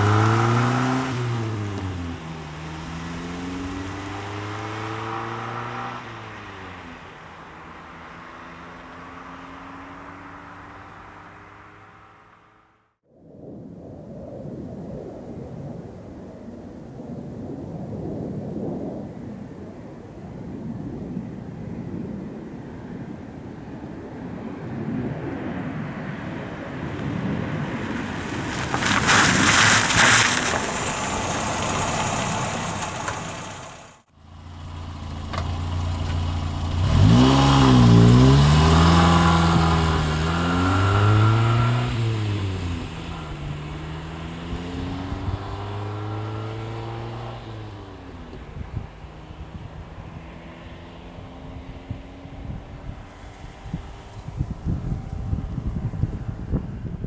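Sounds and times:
car engine revving: 0.0 - 12.6, 27.9 - 56.1
car driving past: 0.0 - 12.8, 25.4 - 56.8.

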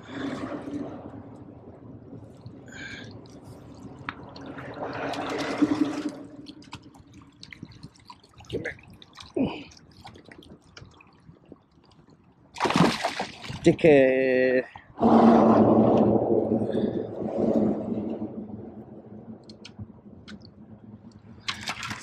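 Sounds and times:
water drips: 1.0 - 13.7
fish thrashing and splashing: 12.5 - 13.6, 21.4 - 22.0.

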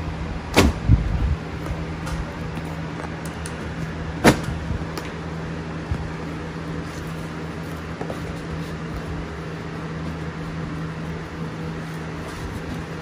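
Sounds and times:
machine hum with hiss: 0.0 - 13.0.

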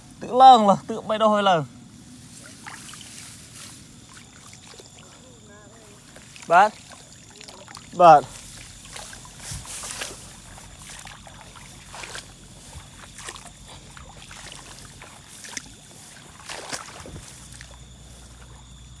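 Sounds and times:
steady hiss: 0.0 - 7.0
grass swishing underfoot: 1.8 - 19.0.

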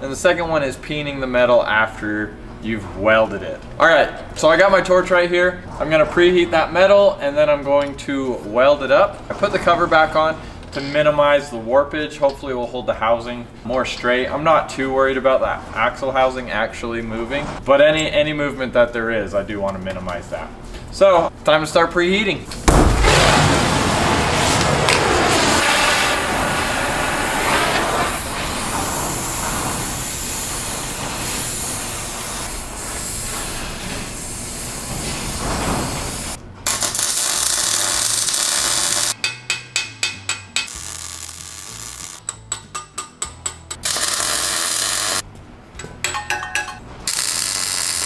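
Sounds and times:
gas torch flame hissing: 22.7 - 39.2, 40.7 - 42.2, 43.8 - 45.2, 47.1 - 48.0.

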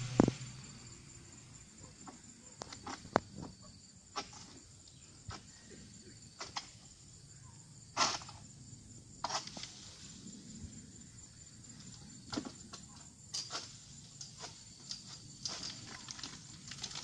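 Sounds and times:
high insect drone: 0.0 - 17.0
sickle knocks and rustles: 13.4 - 17.0.

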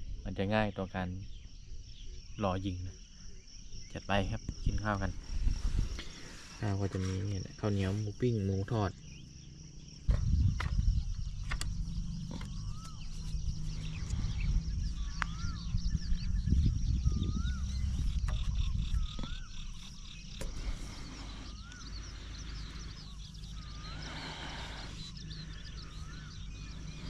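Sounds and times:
insect drone: 0.0 - 27.0
low rumble: 10.0 - 27.0
bird whistling: 12.5 - 27.0.

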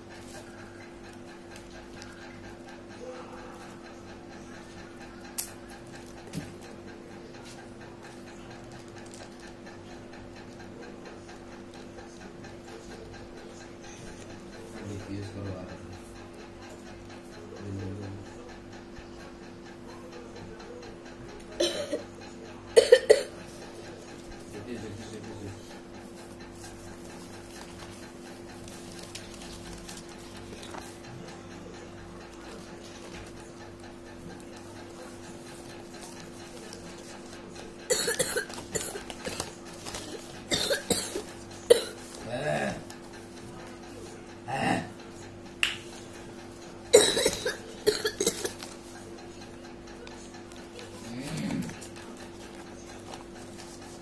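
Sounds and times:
steady low hum: 0.0 - 54.0
person coughing: 21.6 - 22.1, 22.7 - 23.4, 37.9 - 39.5, 40.5 - 42.8, 46.9 - 48.6
paper crackling and folding: 26.2 - 31.0, 38.4 - 40.4
paper rustling: 38.5 - 40.4.

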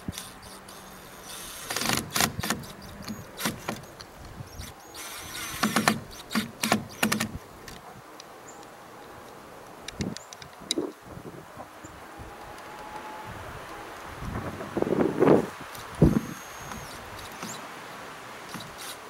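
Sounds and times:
cordless drill bursts into wood: 4.5 - 7.4, 16.0 - 17.6, 18.5 - 19.0.

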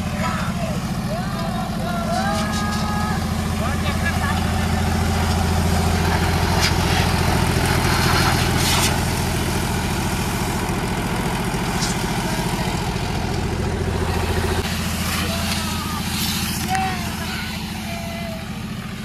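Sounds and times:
diesel tractor engine running: 0.0 - 19.0
compressed air hissing from hose: 7.8 - 9.1, 14.8 - 16.6.

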